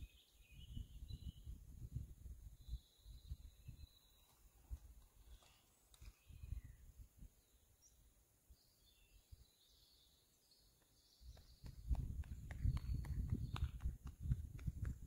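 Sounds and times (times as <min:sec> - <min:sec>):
faint bird chirps: 0:00.0 - 0:01.6, 0:02.5 - 0:11.9
wind buffeting microphone: 0:00.0 - 0:03.9, 0:06.2 - 0:07.3, 0:11.2 - 0:15.0.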